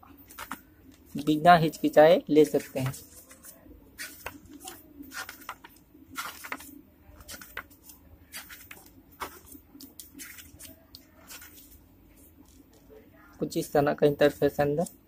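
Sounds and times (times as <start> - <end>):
pages being turned: 0.2 - 1.3, 2.4 - 12.9.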